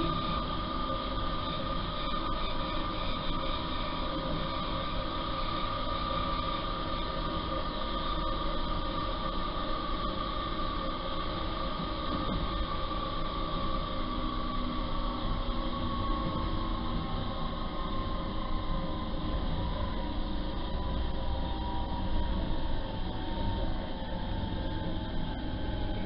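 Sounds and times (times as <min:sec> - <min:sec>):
steady whine: 0:00.0 - 0:26.0.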